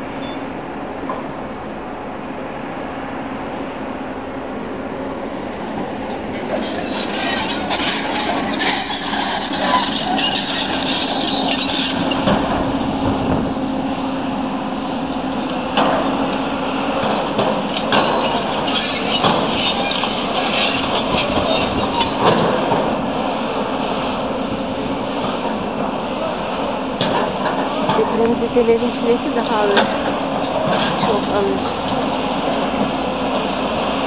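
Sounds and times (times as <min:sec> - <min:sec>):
excavator machine noise: 0:00.0 - 0:34.0
falling concrete crashes: 0:06.4 - 0:13.7, 0:17.0 - 0:23.2.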